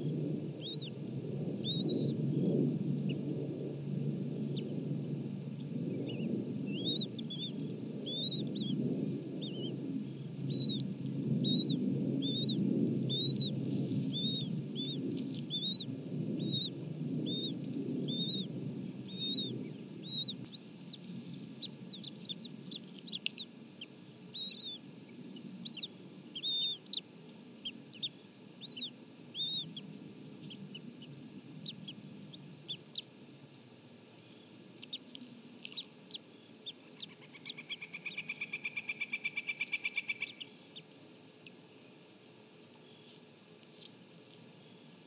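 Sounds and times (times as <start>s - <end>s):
eaglet chirping: 0.6s - 1.0s, 1.6s - 2.1s, 6.7s - 8.8s, 10.5s - 10.8s, 11.4s - 18.5s, 19.1s - 21.0s, 21.6s - 24.8s, 25.6s - 27.0s, 27.6s - 29.8s.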